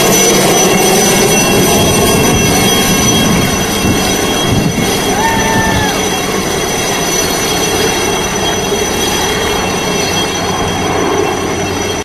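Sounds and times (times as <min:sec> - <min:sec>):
helicopter rotor and turbine: 0:00.0 - 0:12.0
high turbine whine: 0:00.0 - 0:12.0.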